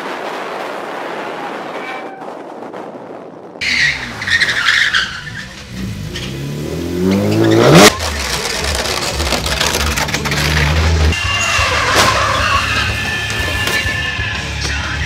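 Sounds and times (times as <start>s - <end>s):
car engine revving: 3.6s - 13.8s
tyres squealing: 3.6s - 14.2s.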